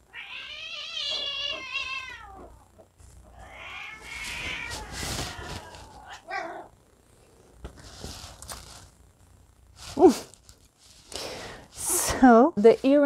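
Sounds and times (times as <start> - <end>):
cats yowling in a fight: 0.1 - 6.7.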